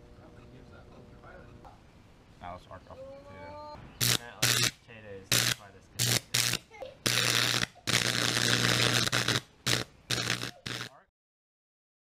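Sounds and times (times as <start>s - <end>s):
electric arc buzzing and crackling: 4.0s - 11.0s.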